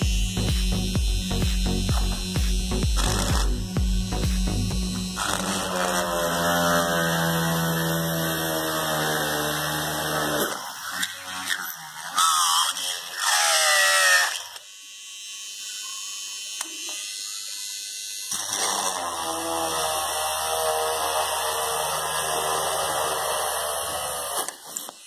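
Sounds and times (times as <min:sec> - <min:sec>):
drill boring into wood: 0:00.0 - 0:25.0
electric drill motor whine: 0:00.0 - 0:25.0.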